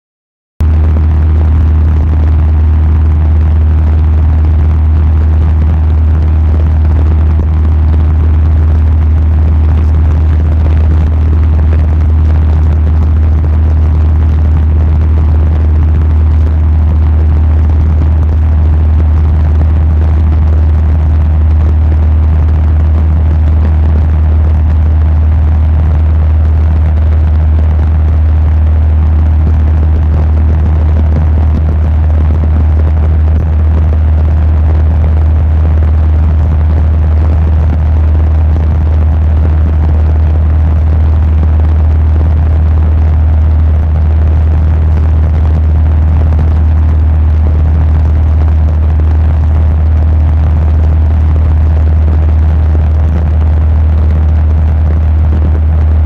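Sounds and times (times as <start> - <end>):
light aircraft engine drone: 0.6 - 56.0.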